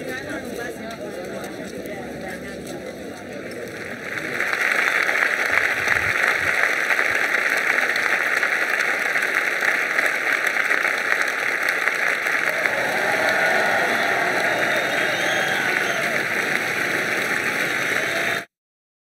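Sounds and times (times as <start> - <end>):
large crowd applauding: 3.5 - 18.5.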